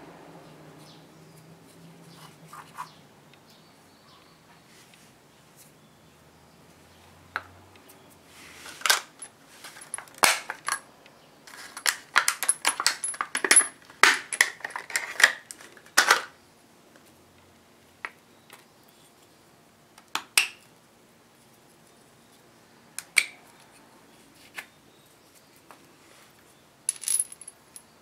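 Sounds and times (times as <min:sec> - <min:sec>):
metal bolts clinking: 0:08.8 - 0:10.8, 0:11.5 - 0:15.3, 0:26.9 - 0:27.9.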